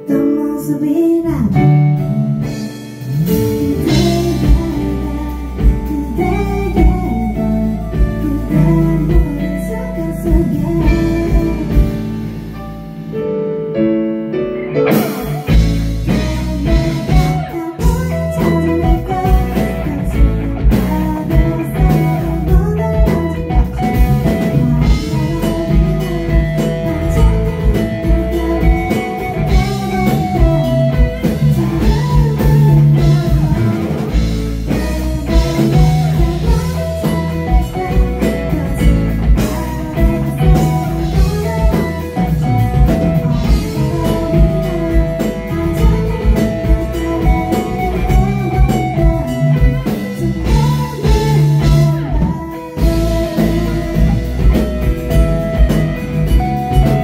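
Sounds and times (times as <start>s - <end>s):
guitar: 0.0s - 57.0s
keyboard: 0.0s - 57.0s
drum beat: 14.9s - 57.0s.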